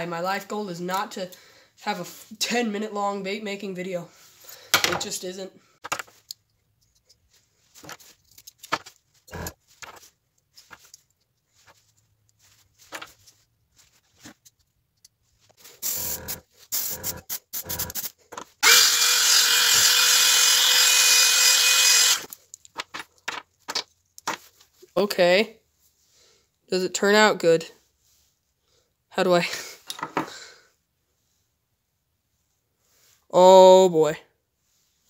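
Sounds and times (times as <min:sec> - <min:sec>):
tools clicking and knocking: 0:05.8 - 0:07.2, 0:07.8 - 0:09.0
airbrush hissing: 0:15.6 - 0:18.1.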